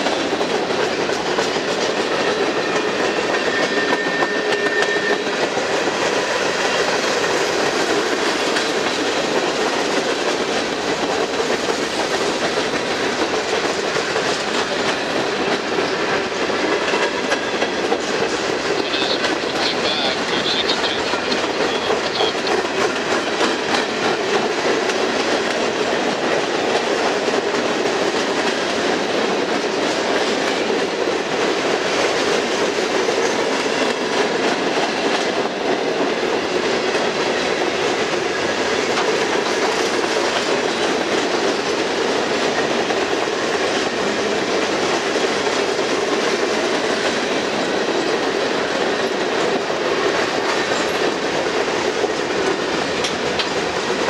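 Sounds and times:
freight train rumbling past: 0.0s - 54.0s
wheels clacking over rail joints: 20.6s - 54.0s.

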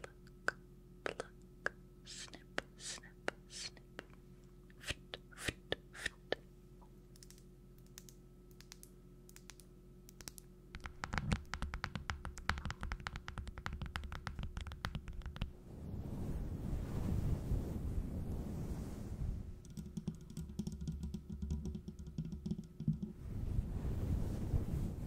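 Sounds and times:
asmr tapping and scratching: 10.8s - 15.5s, 19.6s - 23.2s.

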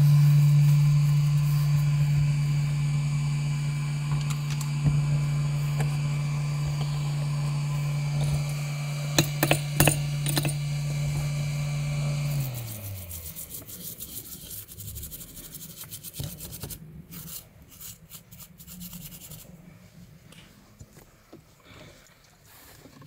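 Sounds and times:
machine hum: 0.0s - 14.0s
brush scrubbing circuit board: 0.0s - 19.6s
solvent dispenser clicks: 4.0s - 11.3s.

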